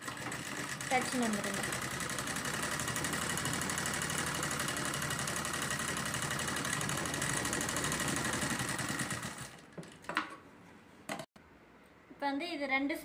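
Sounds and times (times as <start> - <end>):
sewing machine stitching: 0.0 - 10.1.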